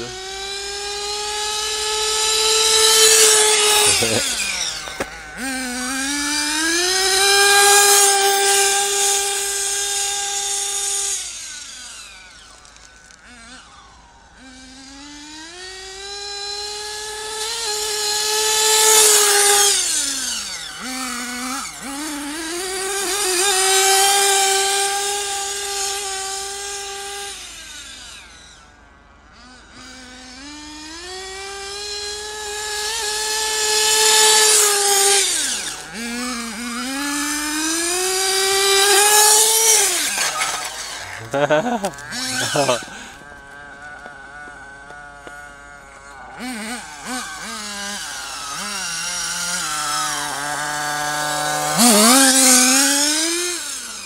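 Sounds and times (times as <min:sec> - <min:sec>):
rc car engine high-pitched whine: 0:00.0 - 0:54.0.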